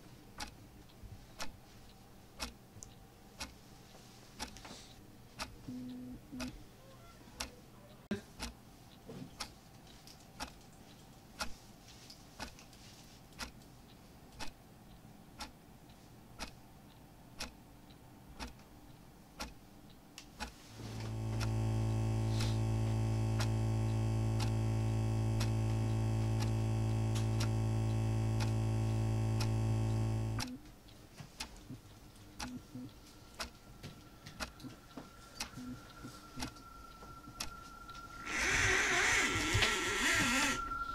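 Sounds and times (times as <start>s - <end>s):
clock ticking: 0.0s - 1.6s, 2.4s - 3.6s, 4.4s - 4.7s, 5.4s - 6.6s, 7.4s - 11.6s, 12.4s - 12.6s, 13.4s - 20.6s, 23.3s - 38.6s
loud droning tone: 20.9s - 30.4s.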